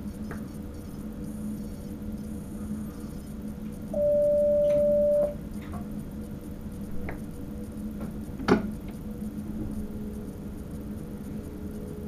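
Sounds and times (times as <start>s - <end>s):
steady electronic beep: 3.9s - 5.4s
low cab hum: 4.0s - 12.0s.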